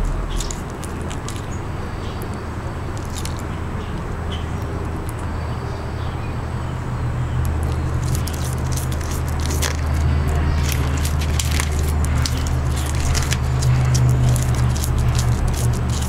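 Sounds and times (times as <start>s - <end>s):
iguana crunching leaf: 0.0s - 1.6s, 2.9s - 4.1s, 7.5s - 16.0s
low rumble: 0.0s - 2.1s.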